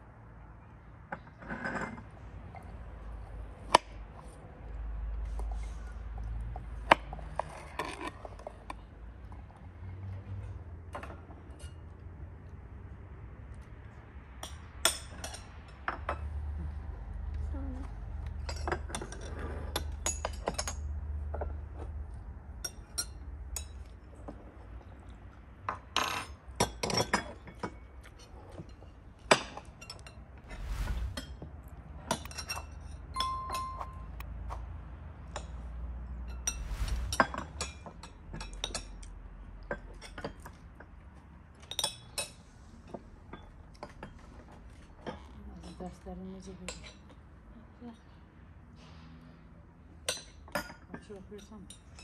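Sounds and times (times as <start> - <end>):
cutlery clinking on china and glass: 32.2 - 34.2
ringing ting: 33.2 - 34.2.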